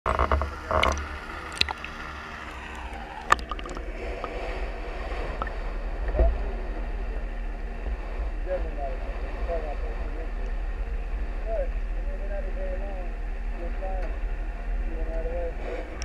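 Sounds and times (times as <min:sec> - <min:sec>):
shallow water sloshing: 0:00.1 - 0:12.1.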